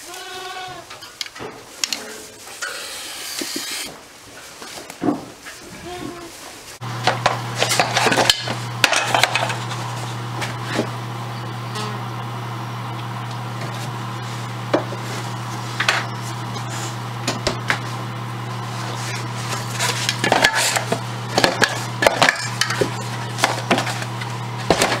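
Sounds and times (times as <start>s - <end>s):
low electrical hum: 0.0s - 25.0s
things clattering at refrigerator: 7.1s - 10.9s, 18.9s - 25.0s
coat sleeve brushing microphone: 13.7s - 17.1s.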